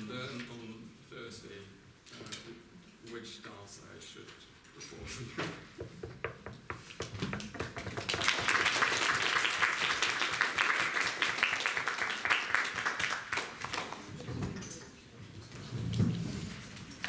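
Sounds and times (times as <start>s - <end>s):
audience applauding: 7.9s - 14.1s.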